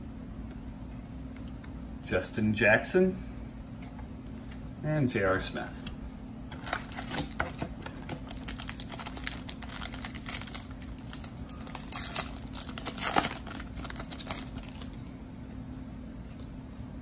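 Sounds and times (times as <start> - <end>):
foil pack crinkling and tearing: 6.5 - 15.0.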